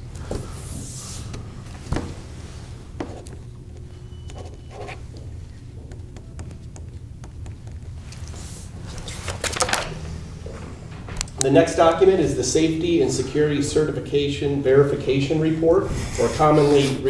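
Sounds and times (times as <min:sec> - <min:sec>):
steady low hum: 0:00.0 - 0:17.0
papers rustling: 0:04.8 - 0:11.5.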